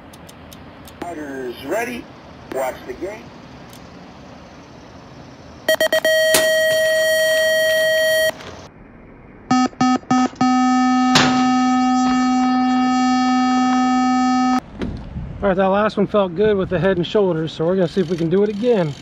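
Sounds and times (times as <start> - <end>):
long electronic tone: 5.7 - 8.4, 9.5 - 14.6
short electronic beeps: 5.7 - 8.4, 9.5 - 14.6.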